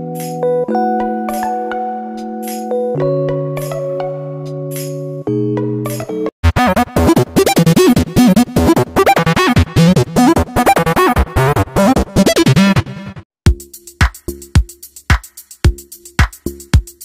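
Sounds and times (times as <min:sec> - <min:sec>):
upbeat electronic music: 0:00.0 - 0:17.0.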